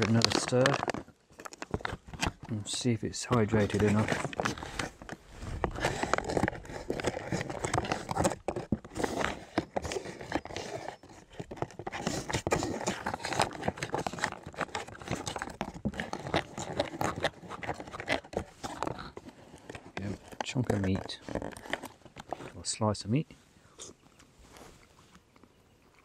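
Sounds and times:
food pouch crinkling: 0.0s - 2.5s, 3.3s - 22.5s
spoon scraping and clicking: 5.8s - 22.5s.

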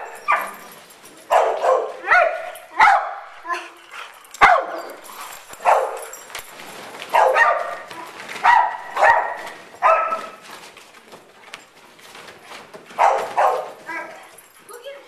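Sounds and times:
big dogs barking: 0.0s - 6.3s, 7.1s - 10.4s, 12.9s - 14.3s.

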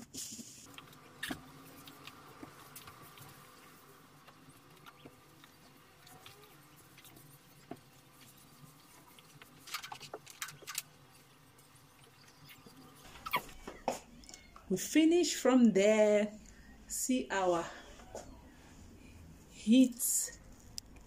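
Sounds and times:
cloth rubbing on hob: 1.0s - 10.3s.

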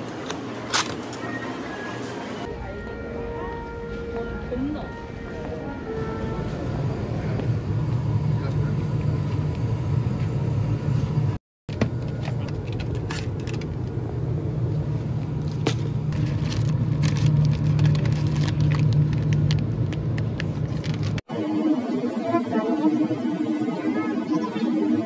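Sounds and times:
products clicking and rustling: 11.7s - 14.0s, 15.5s - 21.2s
plastic packs crinkling: 16.2s - 20.0s.

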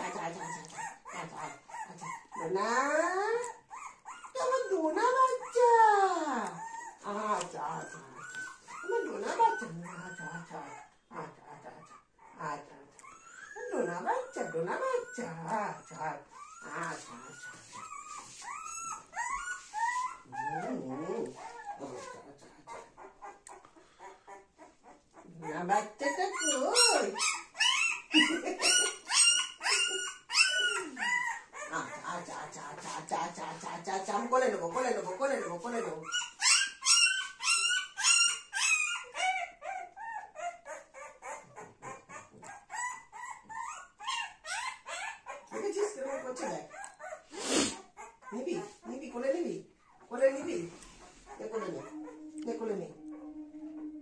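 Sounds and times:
puppy whimpering and crying: 0.0s - 54.0s.

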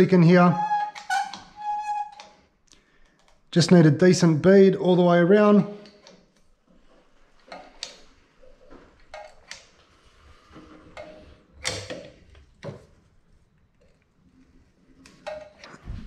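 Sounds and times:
caulking gun clicks and creaks: 0.9s - 3.4s.

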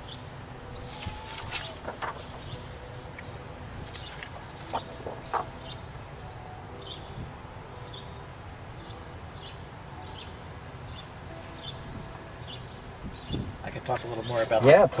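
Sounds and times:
low outdoor rumble: 0.0s - 6.2s.

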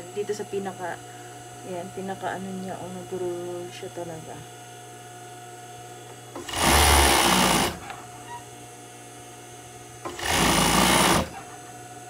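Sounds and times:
low steady hum: 0.0s - 10.6s
sewing machine stitching: 6.4s - 7.9s, 10.1s - 11.4s.

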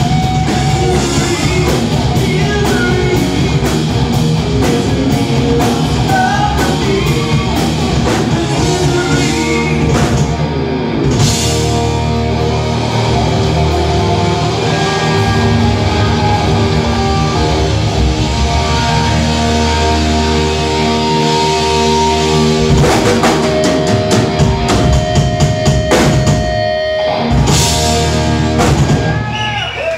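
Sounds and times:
live rock band playing: 0.0s - 29.9s
drum and cymbal hits: 21.3s - 26.7s.

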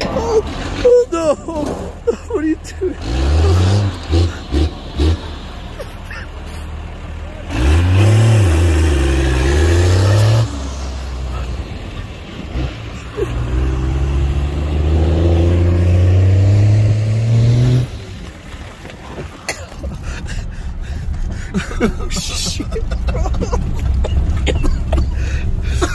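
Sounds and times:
car engine revving hard: 3.0s - 5.6s, 7.4s - 18.3s.

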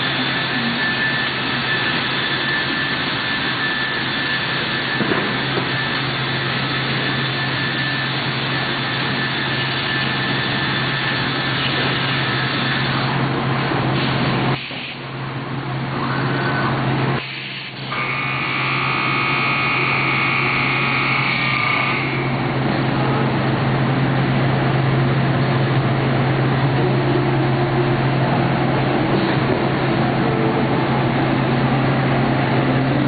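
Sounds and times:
high steady whine: 0.0s - 33.0s
machine running with low hum: 0.0s - 33.0s.

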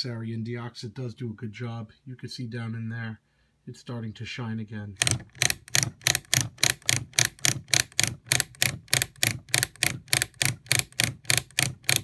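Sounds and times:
rotary switch clicking: 5.0s - 12.0s.

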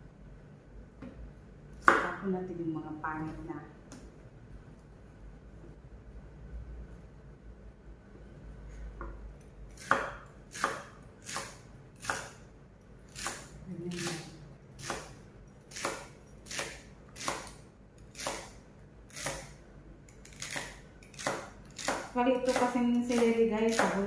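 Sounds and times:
knife chopping celery: 9.7s - 12.4s, 13.1s - 24.0s.

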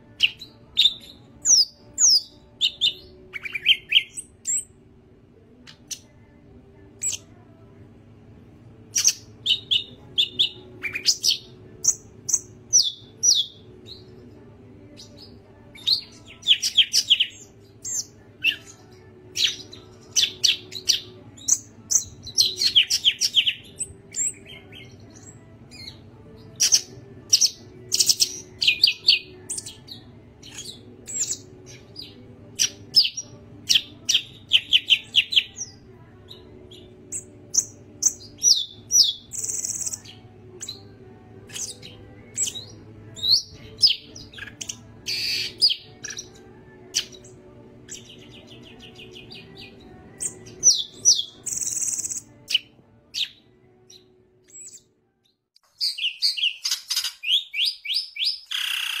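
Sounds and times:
faint low hum: 0.0s - 55.4s
bird chirping and whistling: 0.2s - 4.7s, 8.9s - 14.0s, 37.1s - 40.8s, 41.5s - 46.3s, 50.2s - 52.6s, 55.8s - 59.0s.

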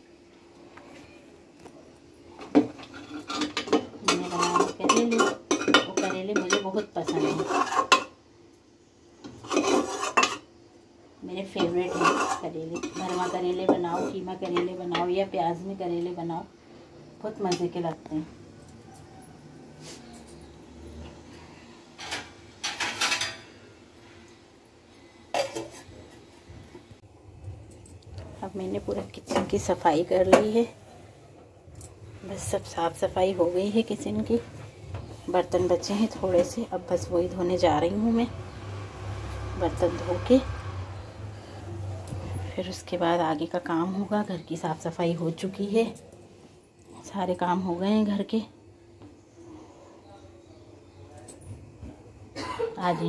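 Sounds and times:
metal spoon scraping a pot: 2.6s - 8.2s, 9.2s - 10.5s, 11.5s - 14.7s.

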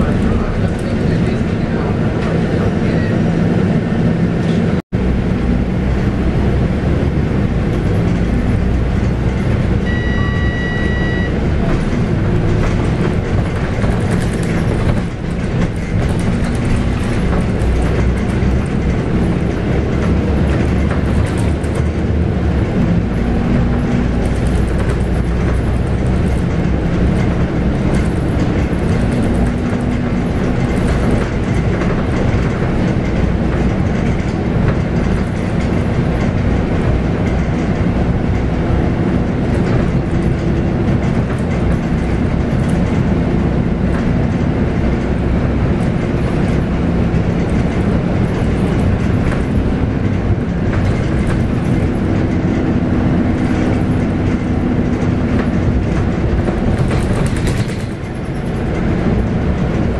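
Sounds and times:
bus diesel engine running: 0.0s - 59.9s
tyre and road noise: 0.0s - 59.9s
short electronic tone: 9.8s - 11.4s.

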